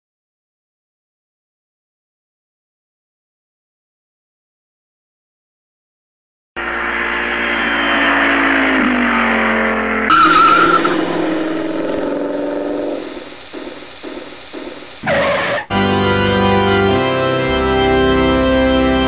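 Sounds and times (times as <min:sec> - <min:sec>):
car engine note falling: 0:06.6 - 0:15.1
quick rising sweep: 0:06.6 - 0:15.1
tyre squeal: 0:10.1 - 0:12.3, 0:15.0 - 0:15.7.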